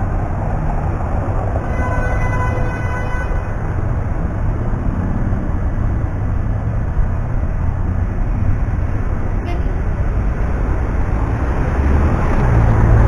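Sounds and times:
city traffic rumble: 0.0s - 13.0s
vehicle horn: 1.6s - 3.6s, 9.4s - 9.8s.

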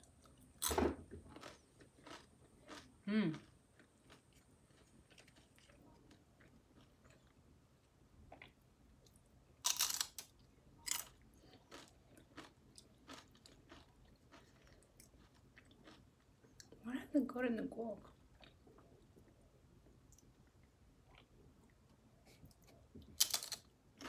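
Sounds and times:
corn chips crunching: 1.4s - 5.8s, 9.6s - 16.0s, 23.2s - 23.7s.

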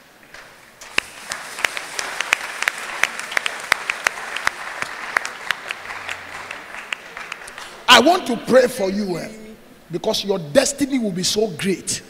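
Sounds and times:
loud single claps: 0.3s - 7.8s
crowd applauding: 0.8s - 8.3s.

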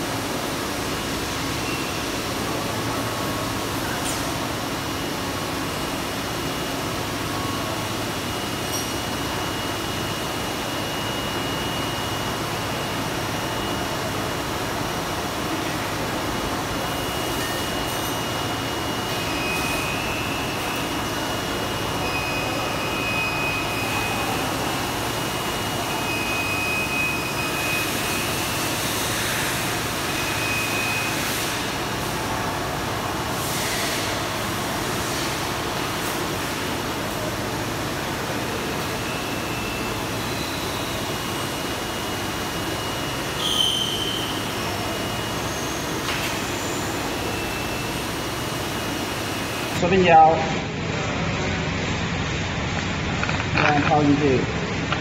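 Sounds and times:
factory machinery humming: 0.0s - 55.0s
faint high whine: 15.5s - 28.8s.

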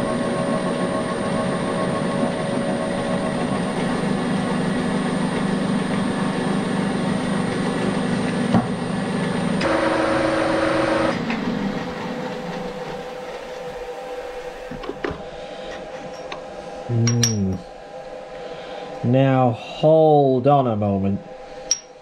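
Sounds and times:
motor running down: 0.0s - 11.6s
milling machine running: 0.0s - 20.2s.

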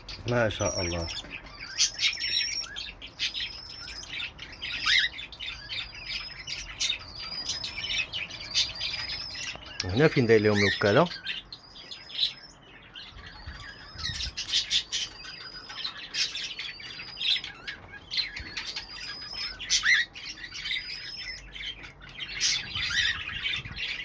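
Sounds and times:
cockatiel squawking: 4.6s - 5.8s.

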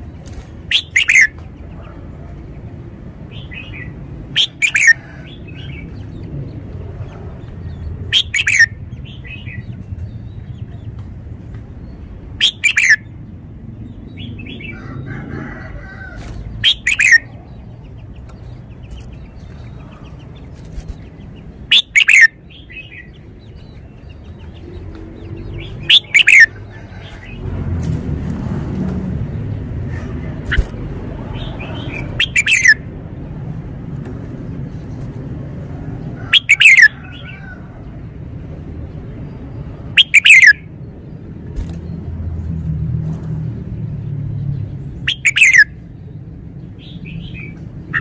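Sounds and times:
bird singing phrases: 0.0s - 27.4s, 29.2s - 33.0s, 36.0s - 37.8s, 38.8s - 43.0s, 44.0s - 48.0s
wings fluttering: 15.5s - 17.2s, 18.8s - 21.4s, 29.9s - 31.2s, 41.5s - 41.9s
soft bird chirps: 16.1s - 27.4s, 29.9s - 32.8s, 40.0s - 40.6s, 44.6s - 48.0s.

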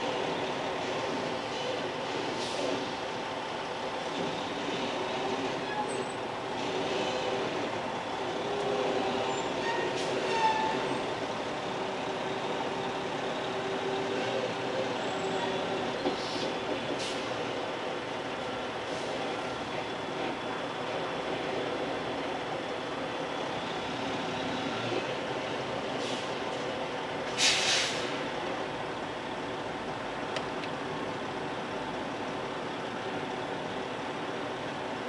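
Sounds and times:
short air hisses: 27.4s - 28.2s.

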